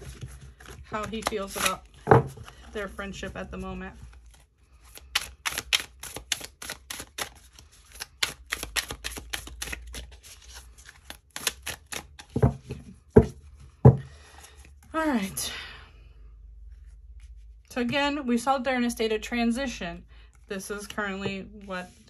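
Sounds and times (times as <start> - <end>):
cards being shuffled: 0.0 - 15.0.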